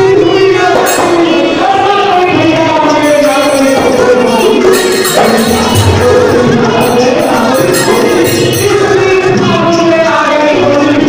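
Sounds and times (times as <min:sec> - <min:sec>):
man singing into a microphone: 0:00.0 - 0:11.0
hand drum playing: 0:02.9 - 0:09.4.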